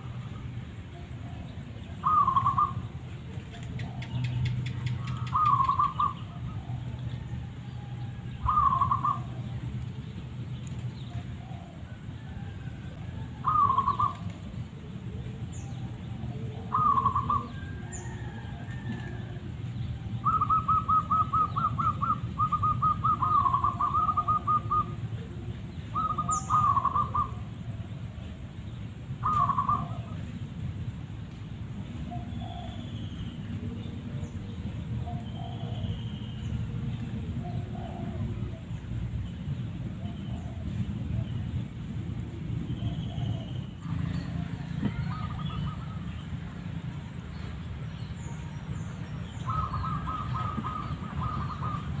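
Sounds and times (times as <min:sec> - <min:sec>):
dove cooing: 0:01.2 - 0:07.4, 0:08.4 - 0:09.6, 0:11.1 - 0:28.3, 0:29.2 - 0:30.3, 0:34.4 - 0:39.1, 0:39.9 - 0:41.6, 0:42.8 - 0:46.1, 0:49.4 - 0:52.0.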